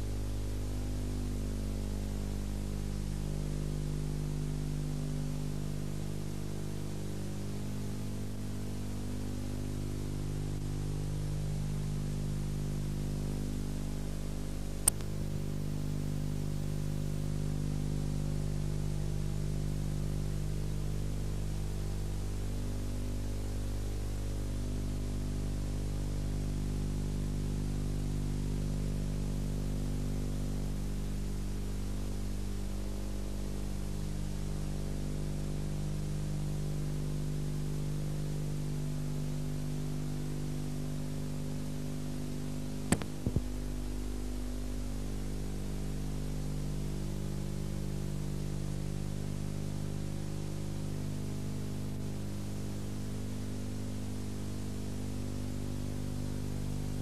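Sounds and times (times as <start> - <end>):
electrical hum: 0.0 - 57.0
sharp clicks: 14.8 - 15.2, 42.9 - 43.5.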